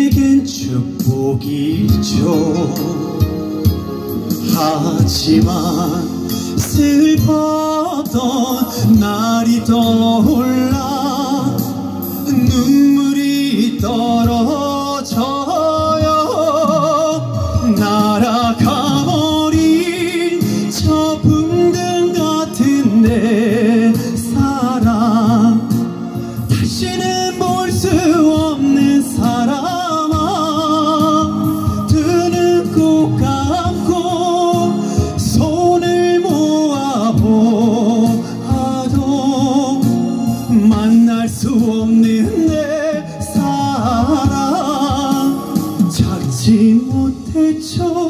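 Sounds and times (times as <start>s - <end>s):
man singing into microphone: 0.0s - 48.0s
recorded backing track: 0.0s - 48.0s.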